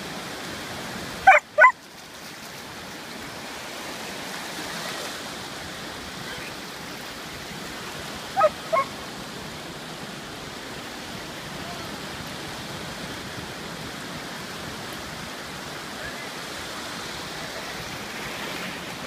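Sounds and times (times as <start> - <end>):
surf washing in shallows: 0.0 - 19.0
dog barking: 1.3 - 1.8, 8.4 - 8.9.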